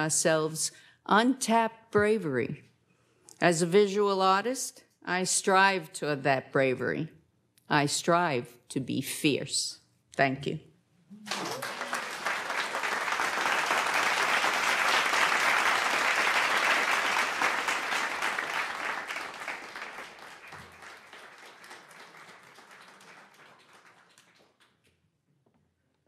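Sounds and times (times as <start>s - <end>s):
audience applauding: 11.2s - 24.9s.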